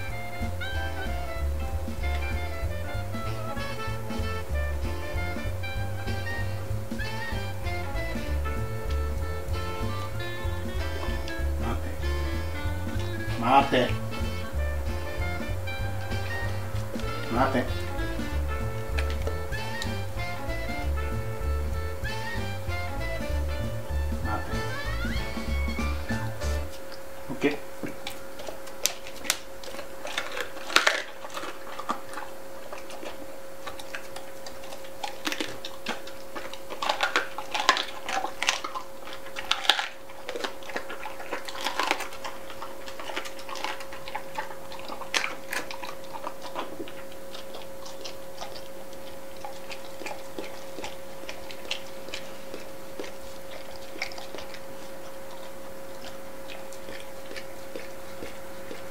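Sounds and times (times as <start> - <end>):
dog crunching bones: 1.9 - 21.4, 23.5 - 58.9
dog licking metal tray: 28.4 - 58.9.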